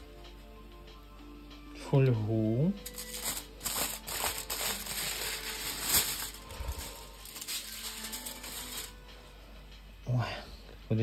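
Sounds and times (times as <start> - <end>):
foil crumpling and crinkling: 2.8 - 9.0.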